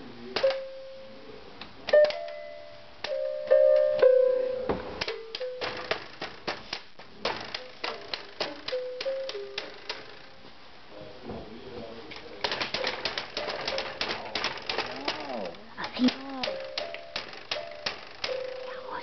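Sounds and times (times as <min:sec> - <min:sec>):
toy keyboard notes: 0:01.9 - 0:04.2, 0:05.0 - 0:06.5, 0:07.2 - 0:10.3, 0:12.4 - 0:19.0.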